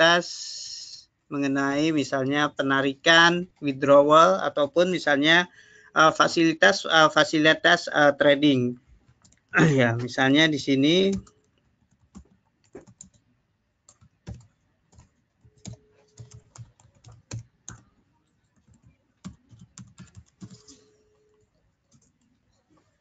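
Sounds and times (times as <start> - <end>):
typing on computer keyboard: 9.1 - 9.5, 11.1 - 13.3, 13.9 - 22.4.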